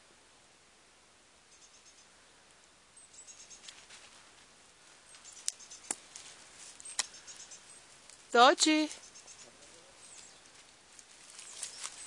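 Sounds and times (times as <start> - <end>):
rapid high ticking or twittering: 1.5 - 2.1, 5.1 - 6.0, 6.8 - 10.5.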